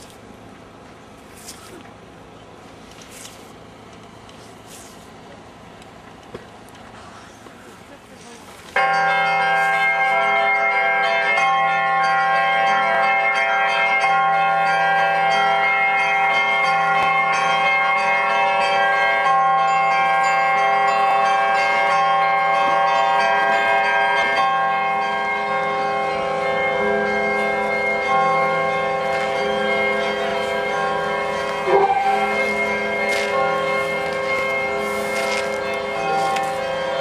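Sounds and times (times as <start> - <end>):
church bells pealing: 8.8 - 37.0.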